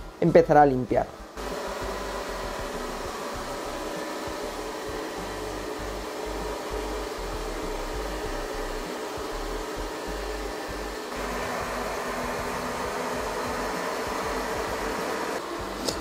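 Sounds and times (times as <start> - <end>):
robot vacuum whirring: 1.4 - 16.0.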